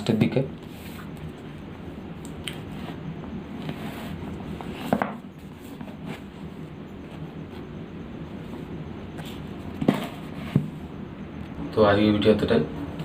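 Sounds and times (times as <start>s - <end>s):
bump against book: 9.8s - 10.8s.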